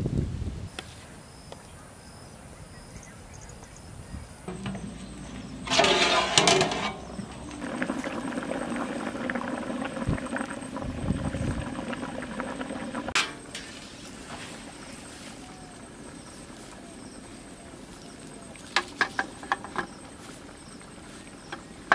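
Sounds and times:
outdoor background: 0:00.0 - 0:21.9
metal pot lid clattering: 0:04.5 - 0:07.8, 0:13.2 - 0:13.8
potatoes boiling: 0:04.5 - 0:21.9.

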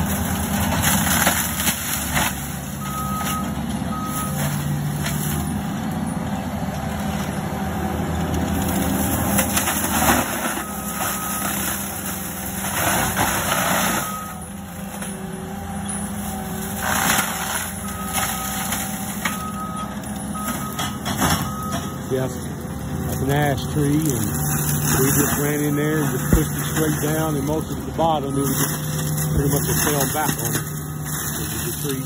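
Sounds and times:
forestry mulcher grinding: 0:00.0 - 0:32.0
backup alarm beeping: 0:19.3 - 0:22.1, 0:25.4 - 0:31.1.

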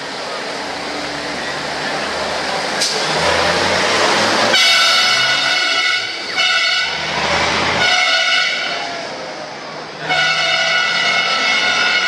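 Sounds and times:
truck horn blasts: 0:04.5 - 0:07.0, 0:07.8 - 0:08.9, 0:10.0 - 0:12.0.

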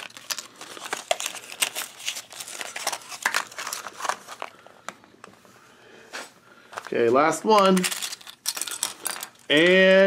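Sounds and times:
plastic and foil crinkling: 0:00.0 - 0:04.9, 0:06.5 - 0:10.0.

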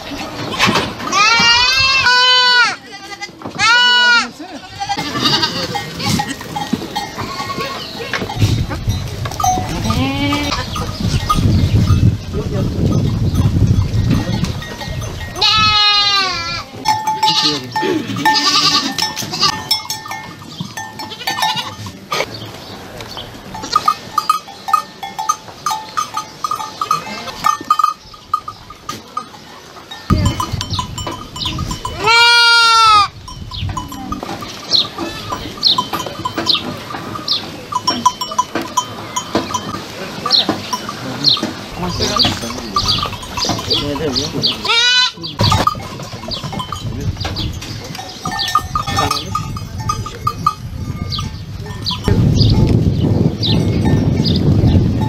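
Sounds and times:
goats bleating: 0:00.5 - 0:08.5, 0:09.5 - 0:11.3, 0:15.2 - 0:19.8, 0:20.8 - 0:22.3, 0:31.7 - 0:33.2, 0:33.8 - 0:46.7.

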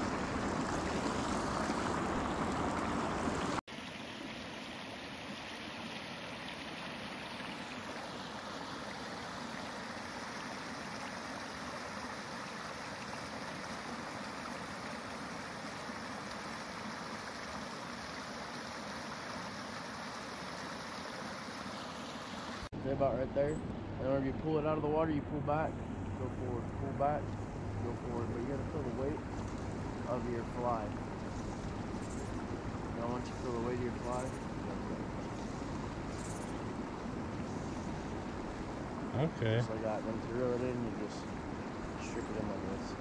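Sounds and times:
loud open-air noise: 0:00.0 - 0:03.8.

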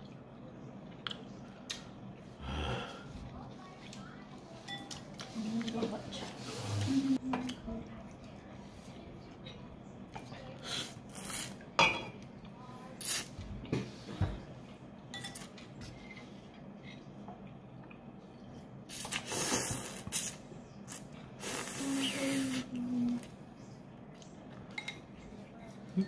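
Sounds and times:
chopsticks clinking against bowl: 0:04.7 - 0:05.3.

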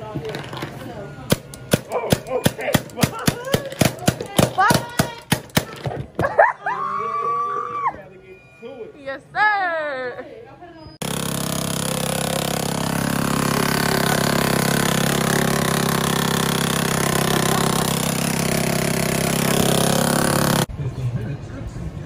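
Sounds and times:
paintball gun rapid firing: 0:01.3 - 0:06.0, 0:11.0 - 0:20.7
low motor hum: 0:11.0 - 0:20.7.

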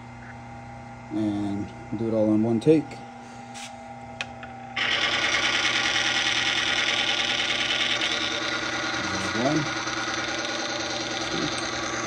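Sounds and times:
small electric motor spinning: 0:04.8 - 0:12.0.

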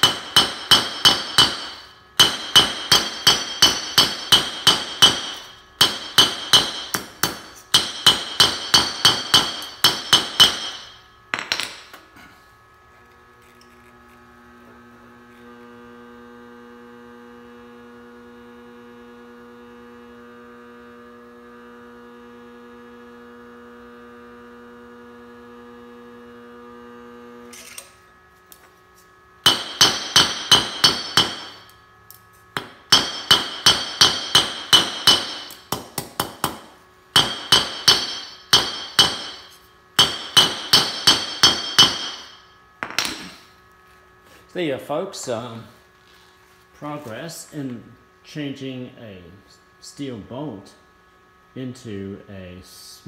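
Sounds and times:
hammer ringing on anvil: 0:00.0 - 0:11.9, 0:29.4 - 0:31.7, 0:32.6 - 0:36.6, 0:37.2 - 0:43.4
induction heater humming: 0:00.0 - 0:53.0.

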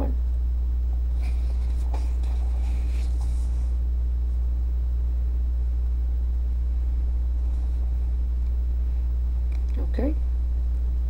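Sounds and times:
steady low hum: 0:00.0 - 0:11.0
paper rustling: 0:01.2 - 0:03.7.

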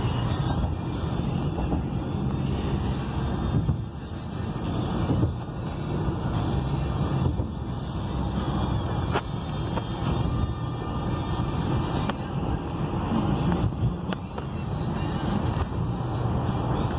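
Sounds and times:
vehicle road and engine noise: 0:00.0 - 0:16.9.

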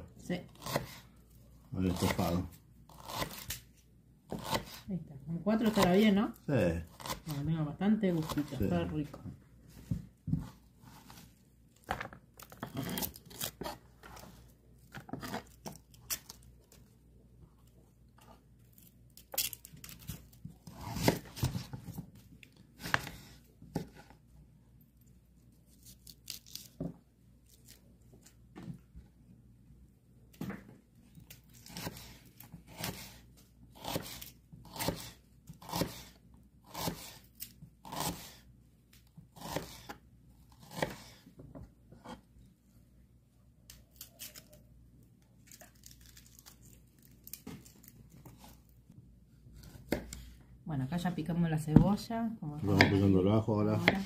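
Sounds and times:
knife slicing onion on wooden board: 0:00.4 - 0:01.1, 0:01.8 - 0:03.6, 0:04.3 - 0:04.9, 0:12.4 - 0:14.3, 0:20.6 - 0:22.0, 0:22.8 - 0:24.1, 0:31.6 - 0:38.5, 0:39.2 - 0:41.3, 0:49.6 - 0:50.3, 0:52.7 - 0:54.0.

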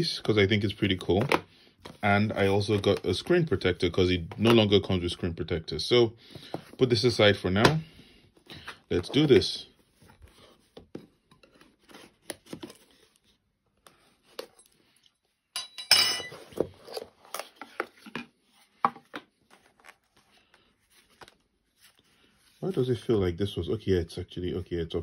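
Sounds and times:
cardboard rustling and scraping: 0:08.6 - 0:14.4.

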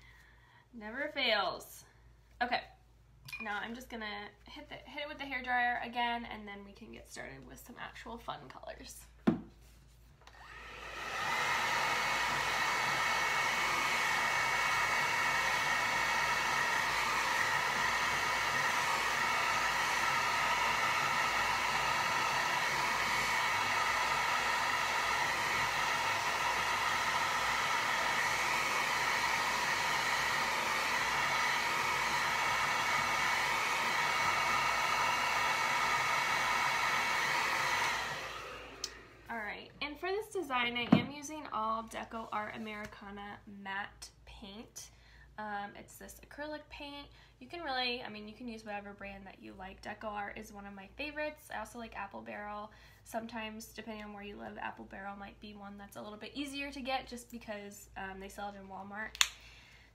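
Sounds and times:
hair dryer running: 0:10.2 - 0:39.4, 0:59.1 - 0:59.5.

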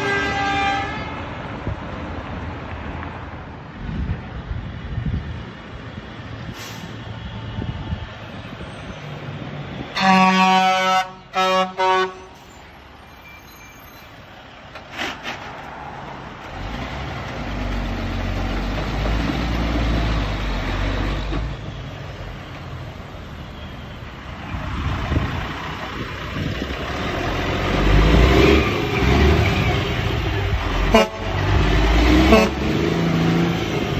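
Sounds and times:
truck air horn toots: 0:00.0 - 0:01.3, 0:09.9 - 0:12.6, 0:30.8 - 0:32.9
dump trucks driving past: 0:00.0 - 0:33.9.

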